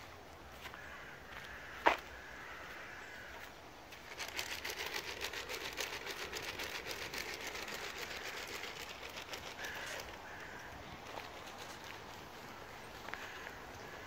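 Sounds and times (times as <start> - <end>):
fast run of clicks: 4.0 - 12.3.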